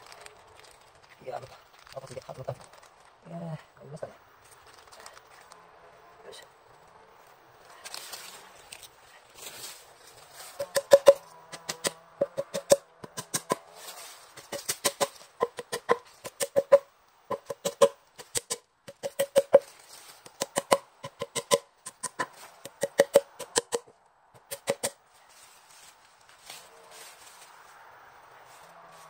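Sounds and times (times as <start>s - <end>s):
small hammer tapping plugs into log: 10.6s - 13.6s, 20.3s - 23.9s.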